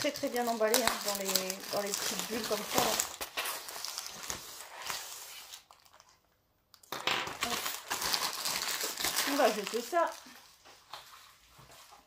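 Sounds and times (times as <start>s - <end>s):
bubble packaging crinkling: 0.0s - 11.4s.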